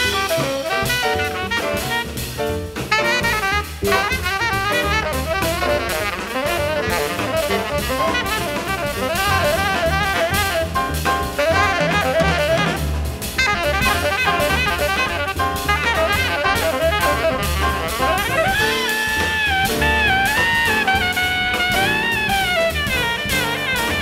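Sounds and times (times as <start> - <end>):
bass: 0.0 - 24.0
drum kit: 0.0 - 24.0
tenor saxophone solo: 0.0 - 24.0.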